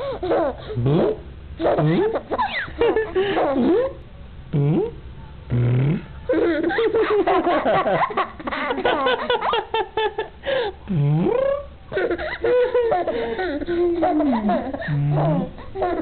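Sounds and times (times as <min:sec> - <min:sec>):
baby laughing: 0:00.0 - 0:04.0, 0:06.3 - 0:10.3, 0:11.4 - 0:16.0.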